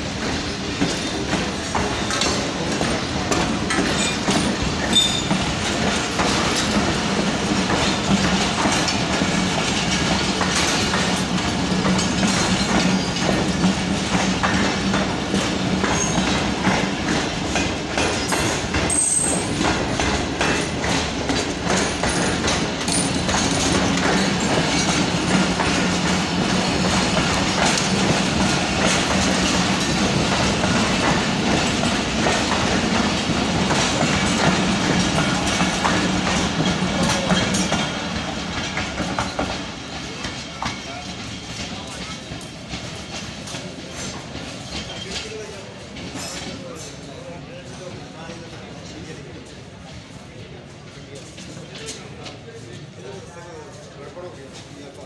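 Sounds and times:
wheels clacking over rail joints: 0:00.0 - 0:47.2
train coaches rumbling: 0:00.0 - 0:55.0.

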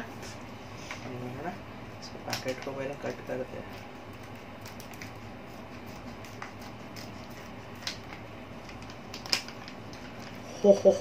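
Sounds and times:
low room hum: 0:00.0 - 0:11.0
scissors snipping plastic packet: 0:04.2 - 0:05.2, 0:06.0 - 0:10.3.

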